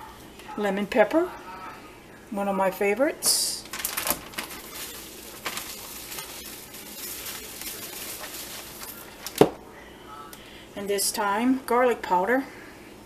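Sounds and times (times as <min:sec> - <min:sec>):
plastic bag crinkling: 0:03.5 - 0:09.6.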